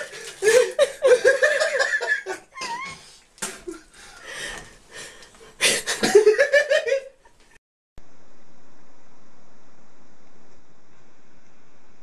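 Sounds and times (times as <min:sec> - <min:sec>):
person laughing: 0:00.0 - 0:03.9, 0:05.6 - 0:07.2.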